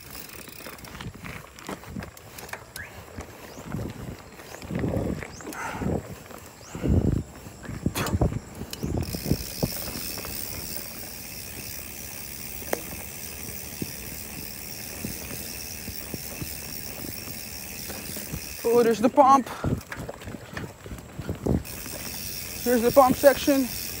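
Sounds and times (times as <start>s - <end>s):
bicycle freehub ratchet buzzing: 0.0s - 24.0s
small rattles: 0.0s - 24.0s
bike knocking over bumps: 7.8s - 18.6s.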